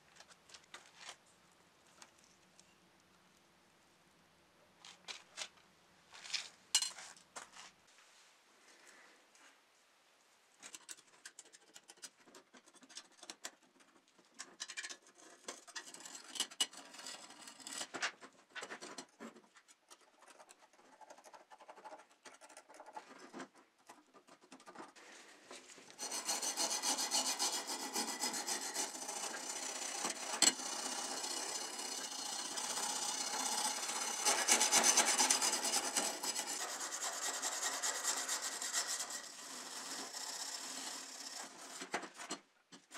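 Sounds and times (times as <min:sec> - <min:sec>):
wire brush scrubbing metal: 0:26.0 - 0:42.3
blade scraping paint off metal: 0:26.0 - 0:42.4.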